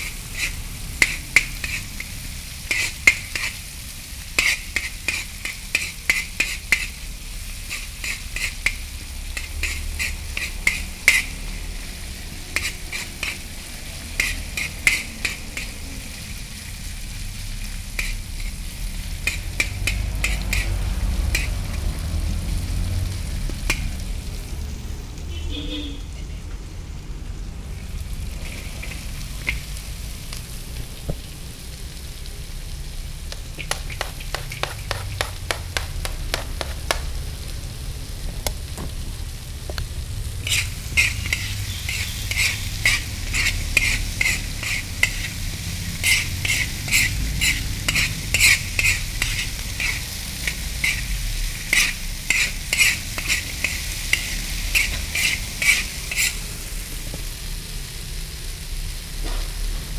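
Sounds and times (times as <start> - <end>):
metal spatula scraping a wok: 0.0 - 16.1, 17.6 - 21.8, 28.3 - 29.8, 33.3 - 37.0, 40.3 - 56.5
food sizzling in a wok: 0.0 - 59.9.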